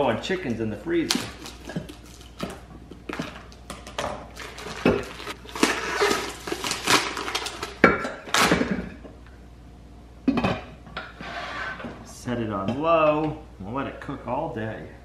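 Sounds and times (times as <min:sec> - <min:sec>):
plastic packaging crinkling: 0:01.0 - 0:08.6.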